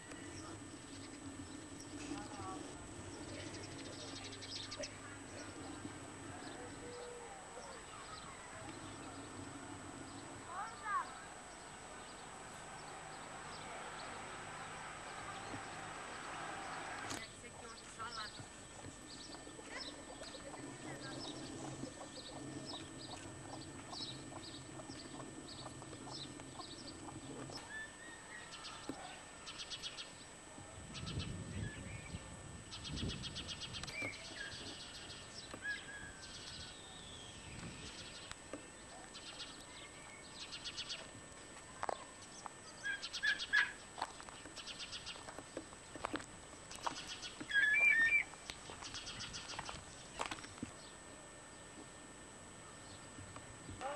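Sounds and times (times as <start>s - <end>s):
birds chirping: 0.0s - 53.9s
loud clear bird calls: 32.7s - 38.4s, 42.7s - 44.0s, 46.7s - 49.7s.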